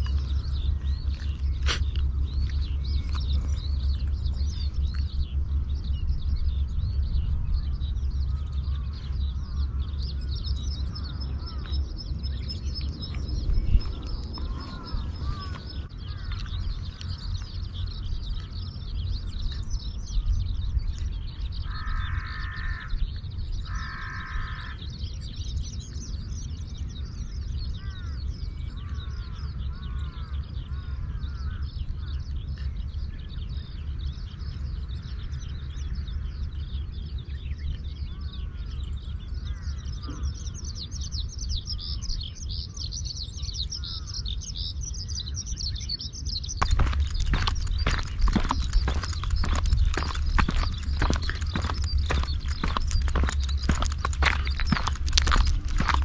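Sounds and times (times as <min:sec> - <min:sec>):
low rumble: 0:00.0 - 0:21.7, 0:46.6 - 0:56.0
birds chirping: 0:00.0 - 0:56.0
loud caws: 0:14.4 - 0:16.4, 0:21.6 - 0:23.0, 0:23.6 - 0:24.9.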